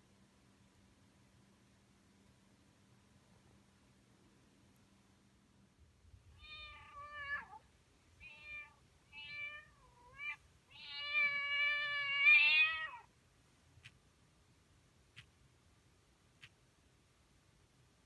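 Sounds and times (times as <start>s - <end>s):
recorded cat meows from phone: 6.3s - 7.6s, 8.2s - 13.1s.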